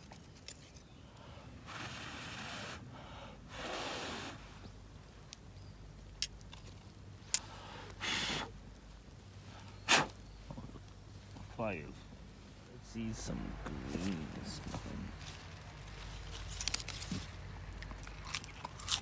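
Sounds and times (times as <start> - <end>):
person blowing on campfire: 1.6 - 4.6, 7.5 - 8.6, 9.5 - 10.2.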